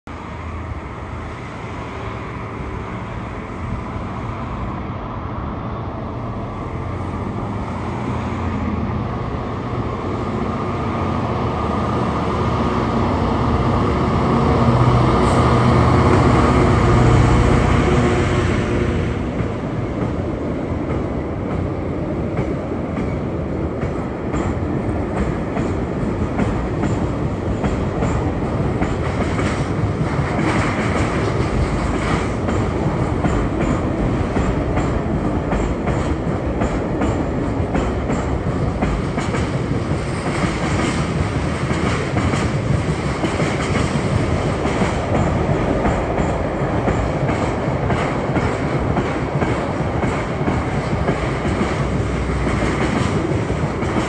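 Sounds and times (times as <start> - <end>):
diesel locomotive engine passing: 0.1 - 54.0
train wheels clicking over rail joints: 15.1 - 54.0.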